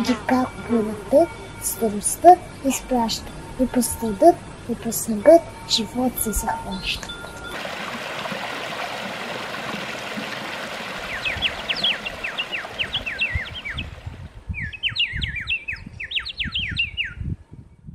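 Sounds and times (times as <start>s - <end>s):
songbird chirping: 0.0s - 7.6s, 8.4s - 17.3s
stream trickling over rocks: 7.4s - 14.4s.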